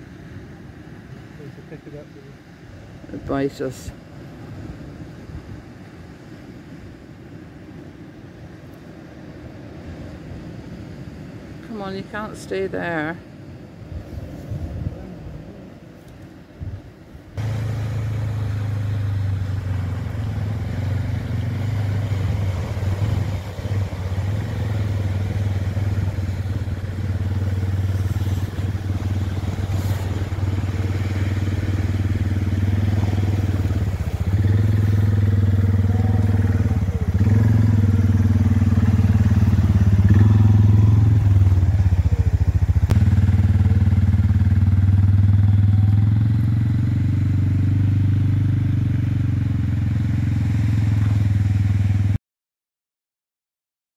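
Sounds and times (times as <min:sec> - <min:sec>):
quad bike engine running: 0:17.4 - 0:52.2.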